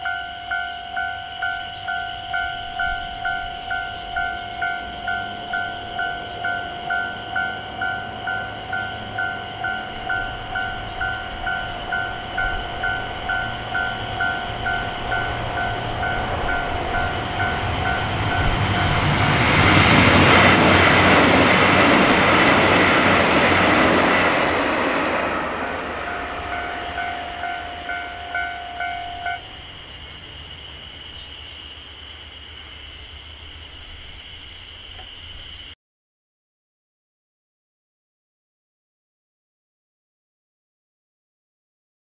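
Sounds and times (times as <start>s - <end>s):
level crossing bell ringing: 0.0s - 19.2s, 24.1s - 29.5s
diesel train passing: 0.0s - 35.6s.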